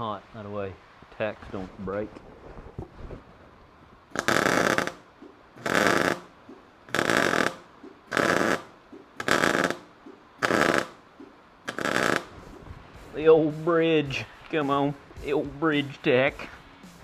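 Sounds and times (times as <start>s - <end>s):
welding arc crackle: 4.1s - 6.3s, 6.9s - 11.0s, 11.7s - 12.4s.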